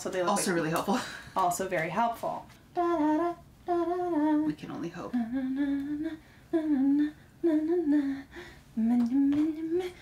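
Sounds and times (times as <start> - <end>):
woman humming: 2.8 - 10.0.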